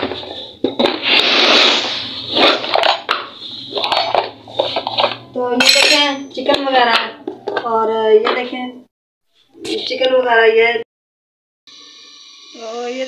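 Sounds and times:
pots and utensils clattering: 0:02.2 - 0:07.6.

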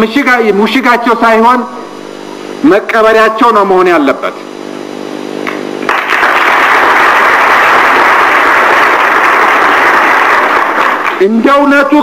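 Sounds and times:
large crowd applauding: 0:05.8 - 0:11.3.

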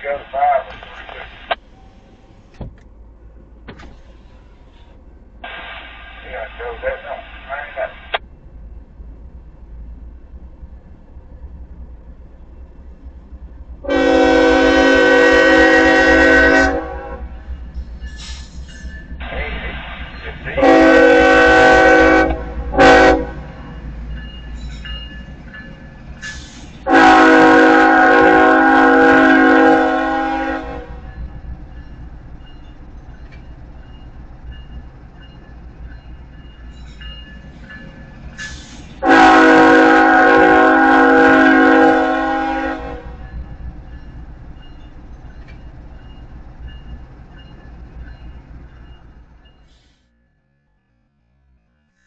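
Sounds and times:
locomotive air horn blasts: 0:13.8 - 0:17.3, 0:20.6 - 0:23.5, 0:26.8 - 0:31.0, 0:39.0 - 0:43.2.

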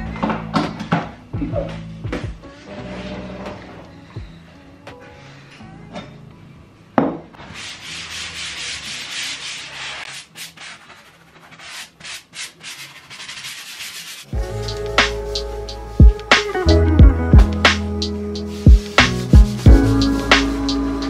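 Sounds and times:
background music: 0:00.0 - 0:07.4, 0:14.3 - 0:21.0
rasping scrubbing strokes: 0:07.6 - 0:16.5, 0:18.4 - 0:21.0.

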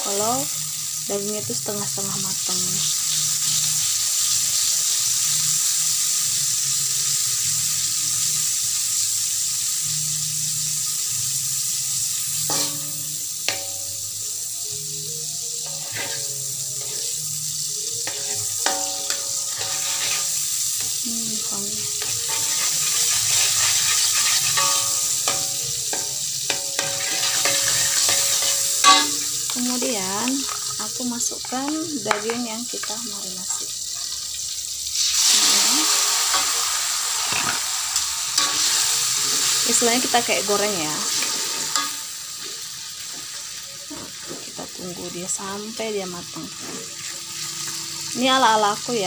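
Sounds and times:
margarine sizzling in a wok: 0:00.0 - 0:49.0
metal spatula scraping a wok: 0:12.3 - 0:13.9, 0:15.6 - 0:21.0, 0:21.8 - 0:30.8, 0:36.0 - 0:42.4.

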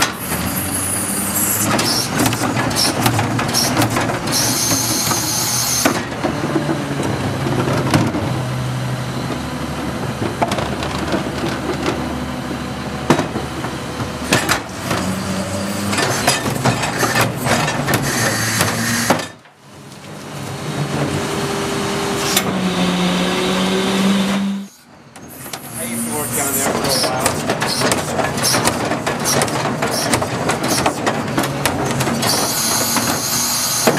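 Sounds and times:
garbage truck engine running: 0:00.0 - 0:33.9
trash carts banging: 0:12.9 - 0:19.6, 0:24.3 - 0:33.9.

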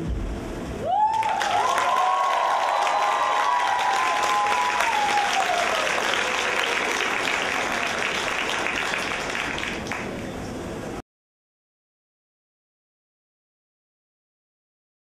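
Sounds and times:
audience applauding: 0:00.9 - 0:10.2.

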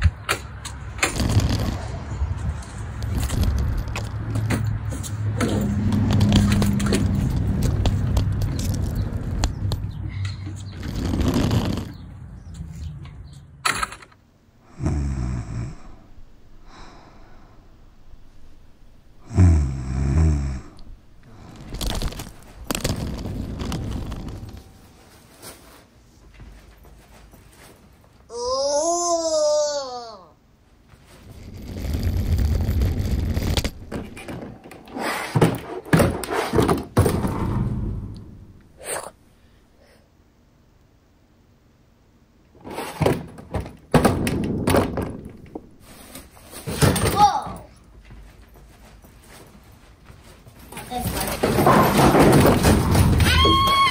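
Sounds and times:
heavy bag knocking and scraping: 0:10.8 - 0:12.0, 0:21.4 - 0:25.6
person snoring: 0:14.6 - 0:17.6, 0:19.2 - 0:21.8.

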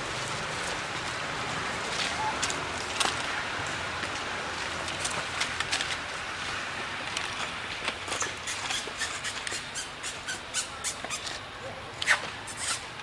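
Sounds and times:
dry leaves and twigs crackling: 0:00.0 - 0:09.3
steady outdoor hiss: 0:00.0 - 0:13.0.

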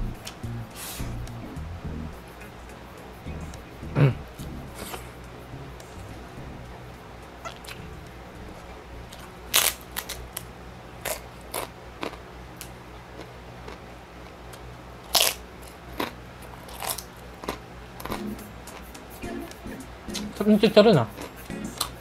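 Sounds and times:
pork rinds crunching being chewed: 0:11.0 - 0:19.0.

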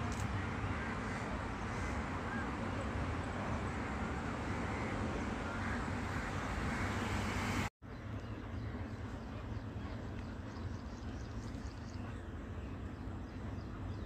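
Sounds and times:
low traffic-like rumble: 0:00.0 - 0:14.0.

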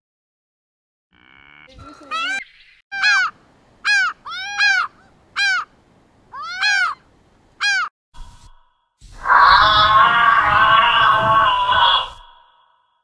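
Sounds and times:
peacock honking calls: 0:03.0 - 0:05.7, 0:06.3 - 0:07.0, 0:07.6 - 0:07.9.

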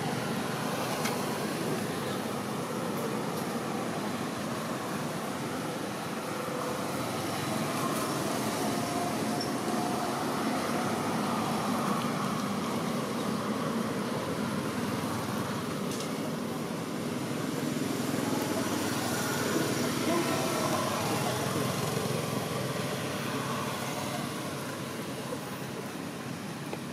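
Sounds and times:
distant road traffic rumble: 0:00.0 - 0:26.9.

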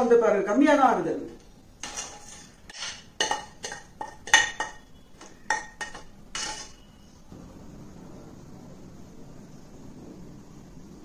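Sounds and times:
spoon scraping metal pan: 0:01.8 - 0:07.2.

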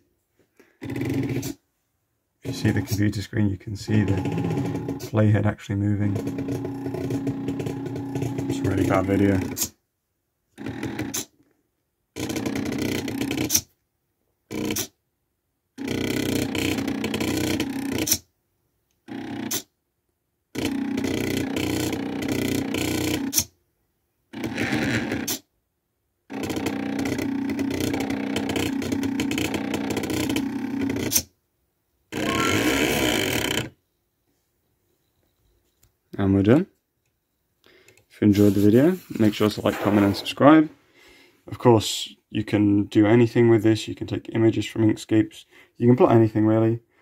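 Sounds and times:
stepper motors buzzing: 0:03.9 - 0:05.1, 0:06.1 - 0:09.6, 0:32.1 - 0:33.7.

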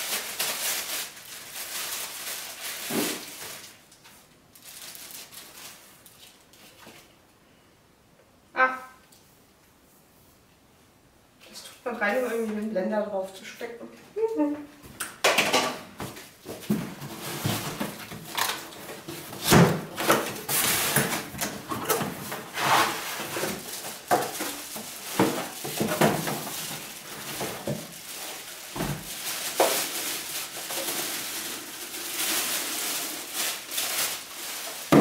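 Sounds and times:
plastic wrapping rustling: 0:00.0 - 0:07.2, 0:16.0 - 0:35.0.

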